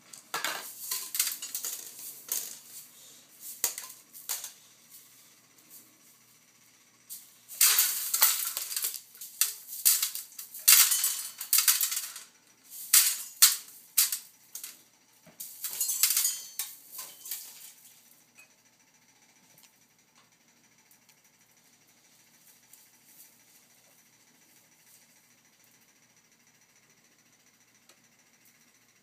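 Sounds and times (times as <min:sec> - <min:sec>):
popcorn kernels rattling on floor: 0:00.0 - 0:06.3, 0:07.1 - 0:18.1.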